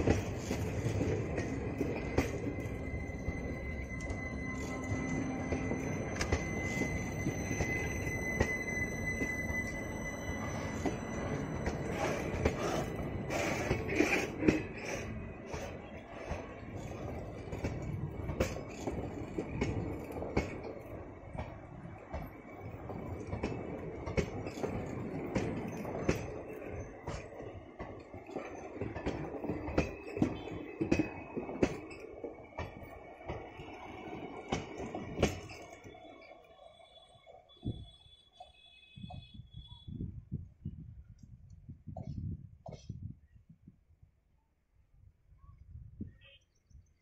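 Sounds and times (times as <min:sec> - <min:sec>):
wheels clacking over rail joints: 0:00.0 - 0:36.6
train wheels rumbling on rails: 0:00.0 - 0:43.2.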